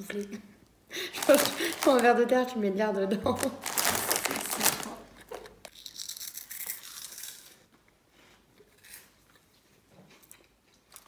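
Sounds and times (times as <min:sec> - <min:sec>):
snack bag crinkling: 0:01.1 - 0:02.2, 0:03.3 - 0:07.6
crunching cheese snacks: 0:01.2 - 0:02.0, 0:03.5 - 0:07.6.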